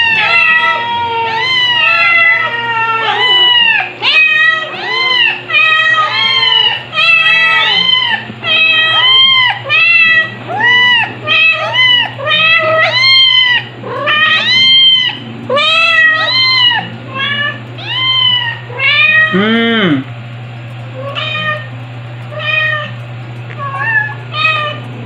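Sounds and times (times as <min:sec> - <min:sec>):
kitten meowing: 0:00.0 - 0:19.6, 0:23.6 - 0:24.8.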